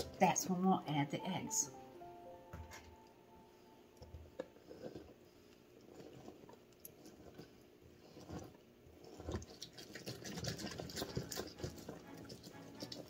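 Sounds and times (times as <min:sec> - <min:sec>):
wet squishing of lemon pulp: 0:05.9 - 0:13.0.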